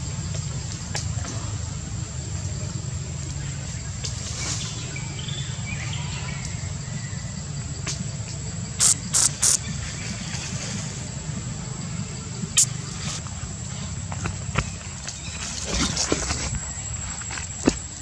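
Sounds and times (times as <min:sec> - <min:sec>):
high insect drone: 0:00.0 - 0:18.0
sharp high-pitched sounds: 0:08.8 - 0:09.6.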